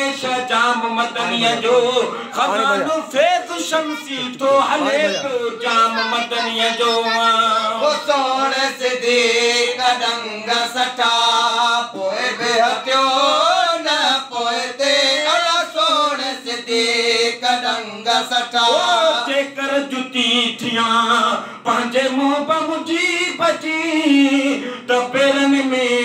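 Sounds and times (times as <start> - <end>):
man singing: 0.0 - 26.0.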